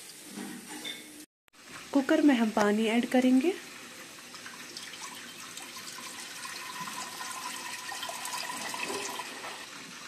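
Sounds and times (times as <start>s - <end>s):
water pouring into a pot: 3.6s - 10.0s.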